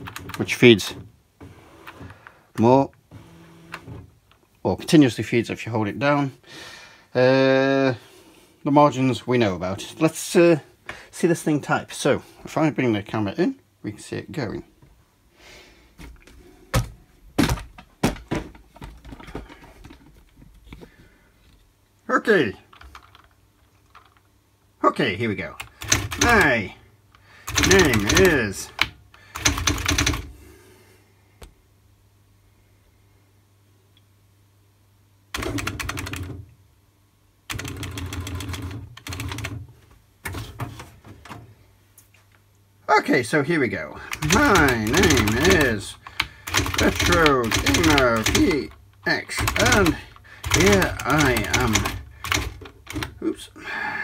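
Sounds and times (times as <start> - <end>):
typewriter rapid strikes: 25.7 - 26.6, 27.4 - 28.6, 29.3 - 30.3, 35.4 - 36.3, 44.1 - 48.7, 49.3 - 53.1.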